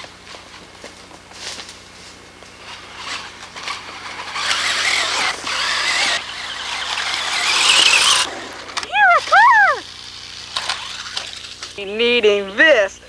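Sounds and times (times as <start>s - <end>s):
rustling: 0.2s - 11.8s
toy car electric motor whining: 2.6s - 11.8s.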